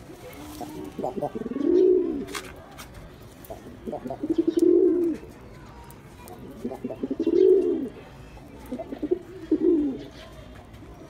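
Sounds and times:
pigeon cooing: 0.1s - 2.3s, 3.6s - 5.3s, 6.4s - 8.0s, 8.7s - 10.2s.

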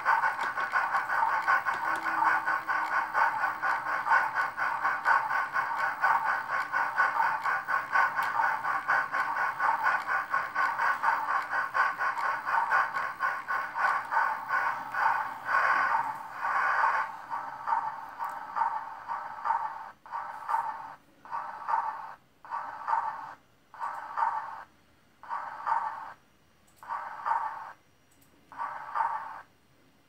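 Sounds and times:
steam exhaust chuffs from speaker: 0.0s - 23.1s
hissing bursts: 0.0s - 26.2s, 26.8s - 27.8s, 28.5s - 29.5s.

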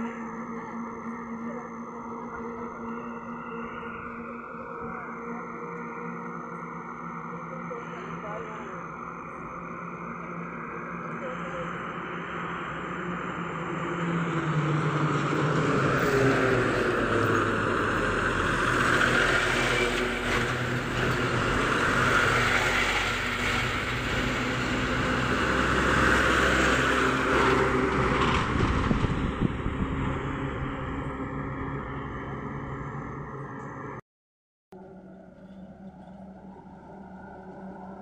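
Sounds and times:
trucks passing on highway: 11.6s - 34.0s, 34.8s - 38.0s.

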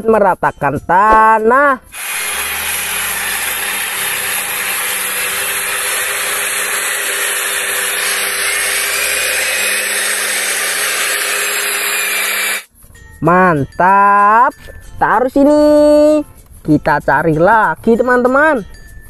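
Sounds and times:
grader blading dirt: 2.0s - 12.7s.

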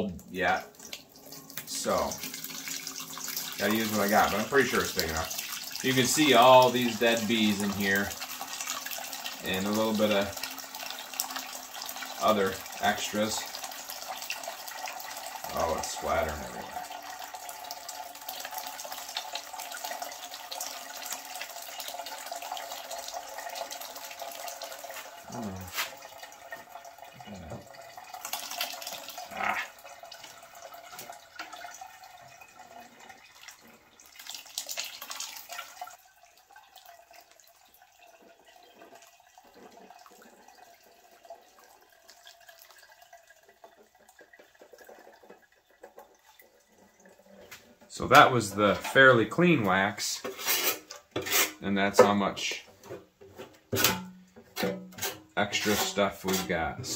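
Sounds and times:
drips through a strainer: 0.0s - 52.2s
liquid pouring and splattering: 0.3s - 56.9s
pan scraping and knocking: 47.5s - 49.1s, 50.2s - 56.7s.

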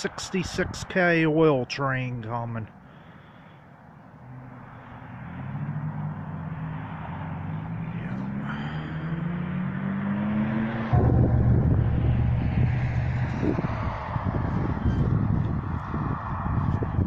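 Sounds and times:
vehicle engine approaching: 4.1s - 17.0s.

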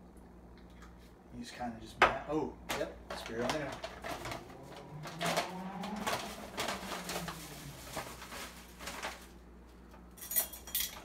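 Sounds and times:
foil pouch crinkling: 3.7s - 9.5s.

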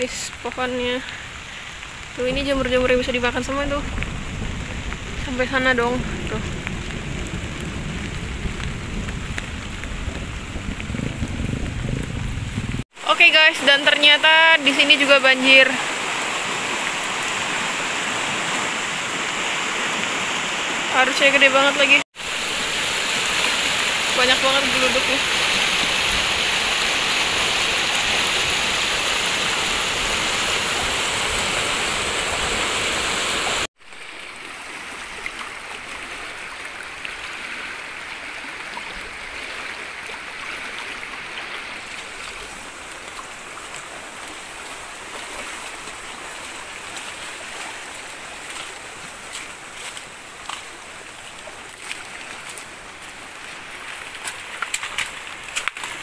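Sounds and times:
steady rush of water: 0.0s - 56.0s
river rushing: 12.9s - 56.0s.

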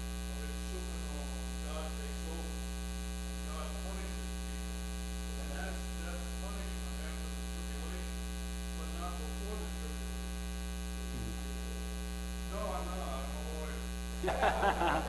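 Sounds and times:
electrical mains hum: 0.0s - 15.0s
louder voices: 14.2s - 15.0s.

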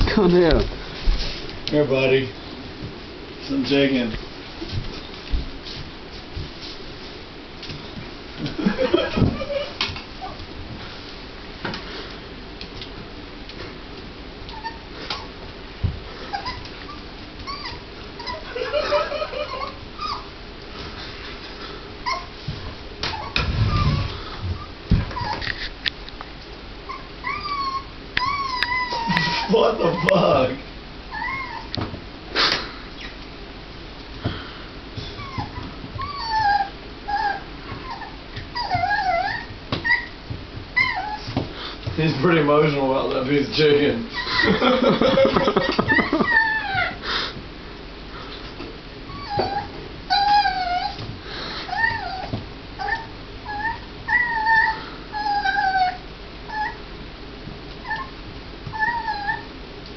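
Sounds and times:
puppy whimpering: 14.5s - 15.3s, 16.2s - 20.3s, 22.0s - 22.3s, 23.0s - 25.5s, 26.9s - 30.4s, 31.1s - 31.7s, 35.0s - 40.2s, 40.8s - 41.4s, 44.1s - 44.6s, 45.8s - 47.0s, 49.1s - 51.1s, 51.7s - 56.8s, 57.8s - 59.5s.

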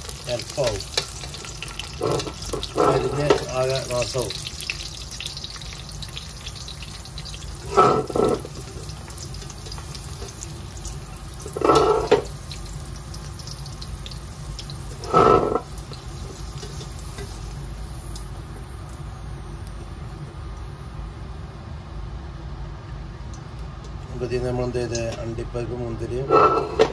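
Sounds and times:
ghee sizzling in a pot: 0.0s - 21.0s
spoon scraping pot: 7.7s - 8.5s, 11.6s - 12.3s, 15.0s - 15.7s.

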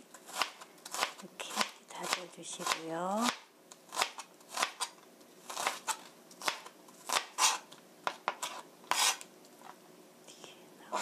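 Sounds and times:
knife chopping onion on board: 0.3s - 4.9s, 5.5s - 9.2s.

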